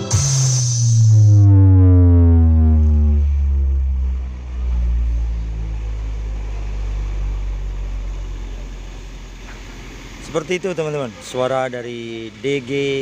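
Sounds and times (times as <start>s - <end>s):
deep sub-bass drone: 0.0s - 9.5s.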